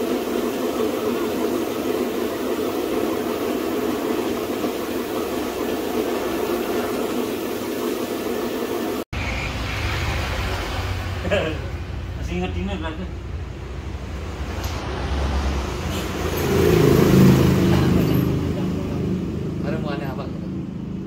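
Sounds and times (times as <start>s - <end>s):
paint spray gun hissing: 0.0s - 9.0s
air compressor running: 0.0s - 21.0s.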